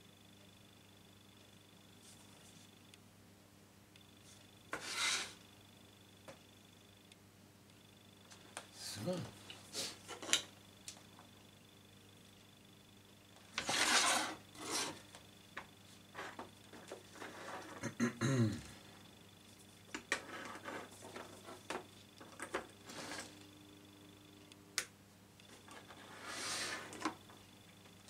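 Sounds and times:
rubbing and scraping on wood: 4.7s - 5.4s, 13.6s - 15.1s, 16.1s - 17.8s.

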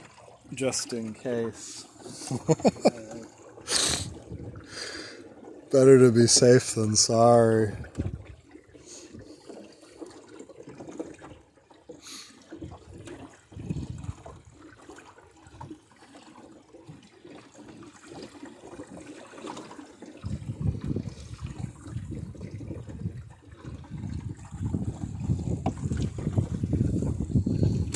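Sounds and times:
water sloshing along a hull: 0.0s - 27.9s
wind buffeting microphone: 4.0s - 4.7s, 7.7s - 8.4s, 12.6s - 14.5s, 20.2s - 27.9s.

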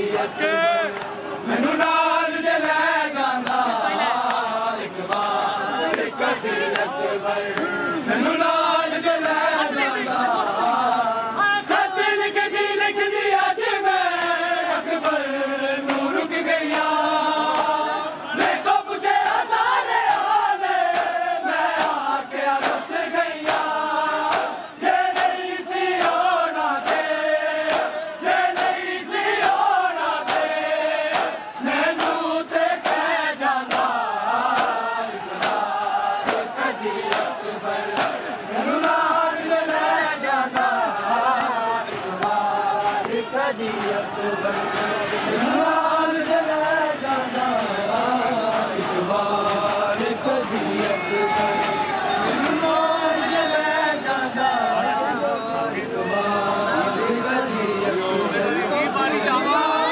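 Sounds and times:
crowd of men chanting: 0.0s - 59.9s
hands slapping bare chests: 20.0s - 31.4s, 32.0s - 39.1s.

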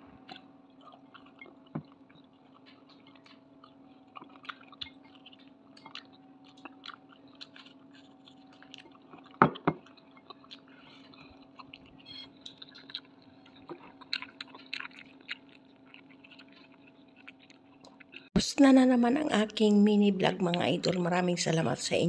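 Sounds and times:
wet chewing: 0.0s - 18.4s.

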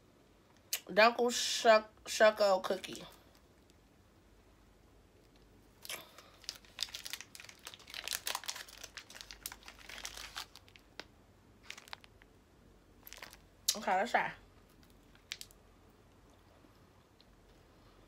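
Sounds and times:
plastic wrapper crackling: 5.8s - 12.3s, 13.0s - 13.5s, 14.6s - 15.6s.

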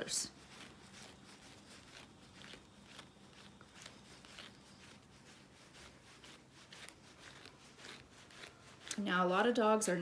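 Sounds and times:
brush strokes through dog fur: 0.0s - 10.0s.

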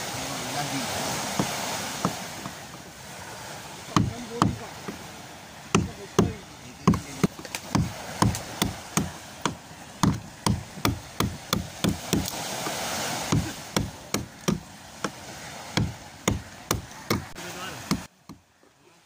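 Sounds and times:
hammer striking a chisel: 5.8s - 12.3s.

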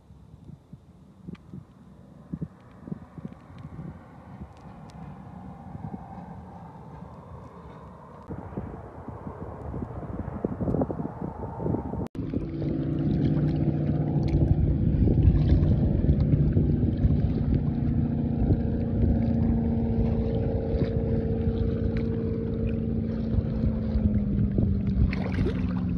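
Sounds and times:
wind on microphone: 0.0s - 25.9s
water splashing: 12.2s - 25.9s.

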